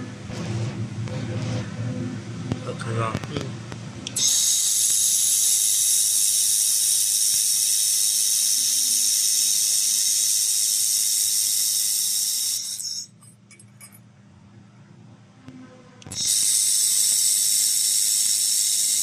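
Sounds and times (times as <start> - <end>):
laser welder hissing: 4.1 - 13.2, 16.0 - 19.0.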